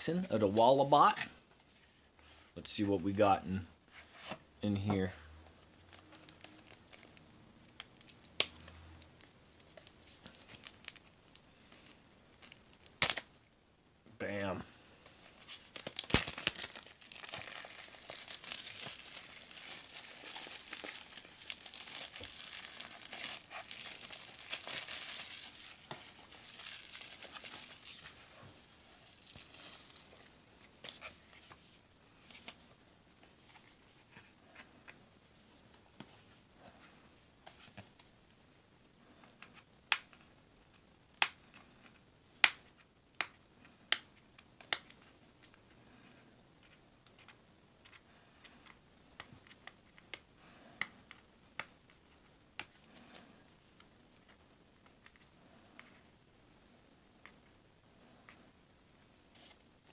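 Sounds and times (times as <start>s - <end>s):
plastic wrap crinkling: 5.8s - 8.8s, 15.2s - 31.2s.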